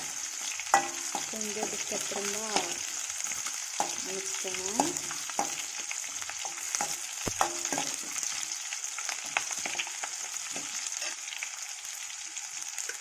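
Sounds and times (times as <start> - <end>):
onions sizzling in oil: 0.0 - 13.0
spatula scraping and clinking on pan: 0.5 - 4.1, 4.7 - 11.4.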